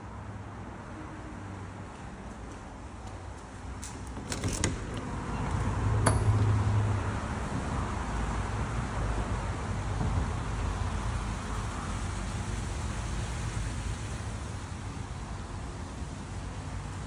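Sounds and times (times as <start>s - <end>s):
rushing outdoor noise: 0.0s - 17.0s
door handle latch clicking: 4.1s - 5.1s.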